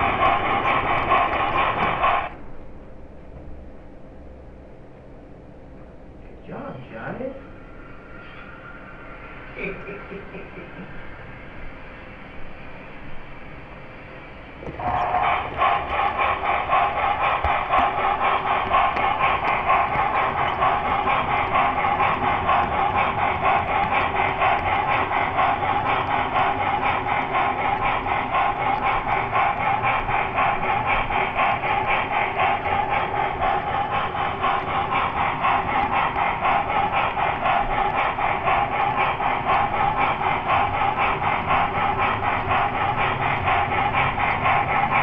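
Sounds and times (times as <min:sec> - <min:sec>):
model train motor whirring: 0:00.0 - 0:02.4, 0:14.6 - 0:45.0
rail clatter: 0:00.0 - 0:02.4, 0:14.6 - 0:45.0.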